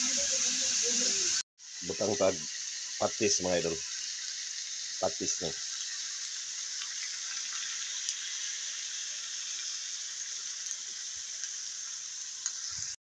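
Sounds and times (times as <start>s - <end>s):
pork sizzling in a wok: 0.0s - 13.0s.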